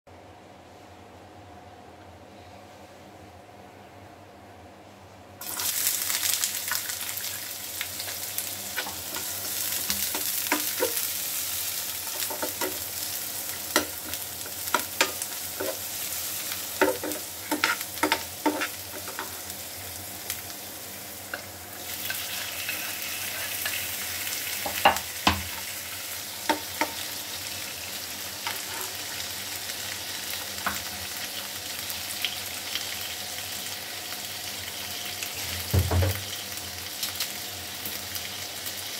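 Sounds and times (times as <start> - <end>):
onions sizzling in hot oil: 5.4 - 38.9
spoon scraping pan: 13.7 - 15.9, 16.6 - 19.5, 21.3 - 25.0, 28.4 - 29.2.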